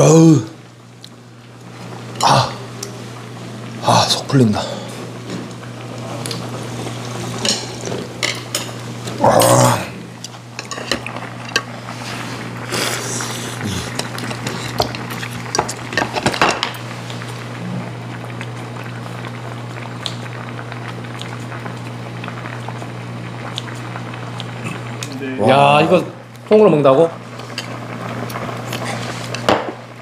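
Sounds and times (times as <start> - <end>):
utensils clinking against bowls: 10.2 - 11.7.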